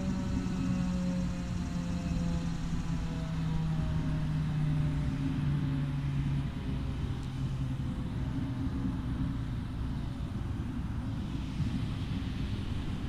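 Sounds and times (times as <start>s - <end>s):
warning siren winding down: 0.0s - 5.1s.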